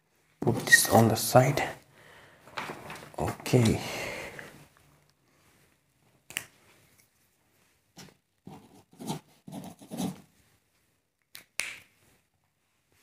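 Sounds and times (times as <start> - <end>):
pen scratching on paper: 8.5 - 10.2.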